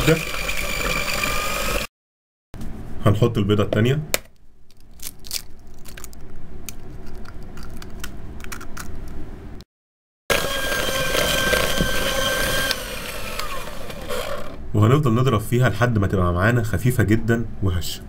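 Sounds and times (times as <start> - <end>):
electric hand mixer running: 0.0 - 1.9, 10.3 - 14.6.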